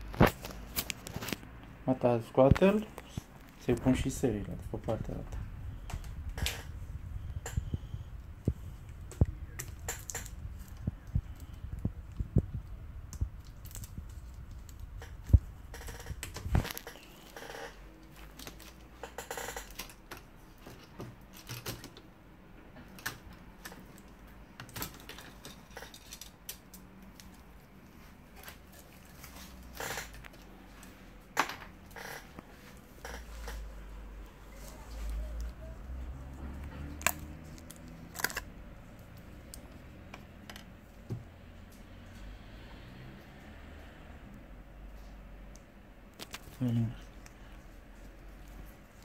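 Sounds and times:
low rumble: 0:03.1 - 0:16.8
laptop parts clicking and tapping: 0:04.8 - 0:22.1, 0:22.8 - 0:27.5, 0:36.5 - 0:41.3.

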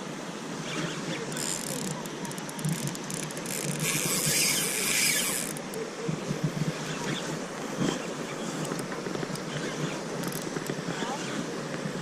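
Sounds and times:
fishing reel drag clicking and buzzing: 0:00.7 - 0:05.8, 0:08.7 - 0:10.8.

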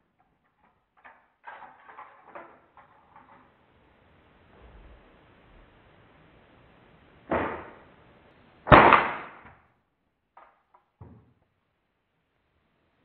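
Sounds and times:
air rifle shots: 0:08.7 - 0:09.4.

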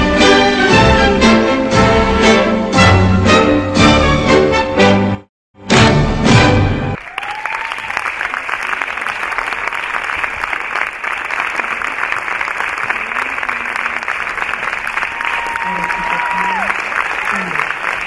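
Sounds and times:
audience applause: 0:07.0 - 0:18.0.

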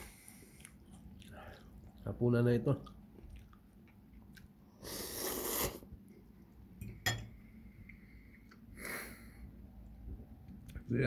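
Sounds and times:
man chewing crunchy biscuits: 0:00.0 - 0:05.8.

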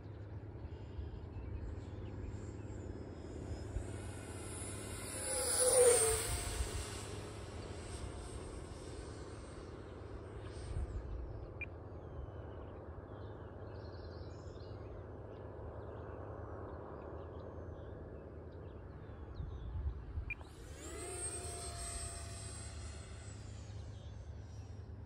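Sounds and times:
model airplane motor whine: 0:00.1 - 0:13.6, 0:18.0 - 0:25.0
wind rumble on microphone: 0:19.2 - 0:20.4.

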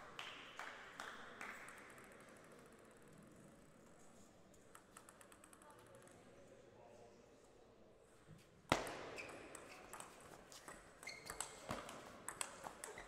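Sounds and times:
table tennis ball clicking: 0:04.7 - 0:06.1, 0:09.3 - 0:13.0
shoes squeaking on floor: 0:09.1 - 0:11.8.

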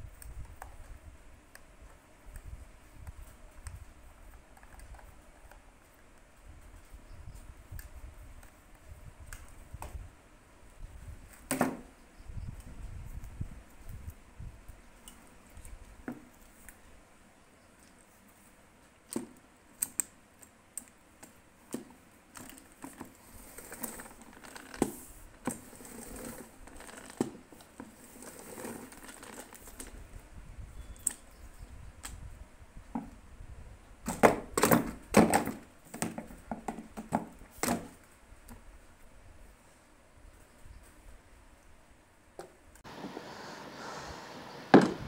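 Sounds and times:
plastic mop clicks and rattles: 0:26.2 - 0:29.9.

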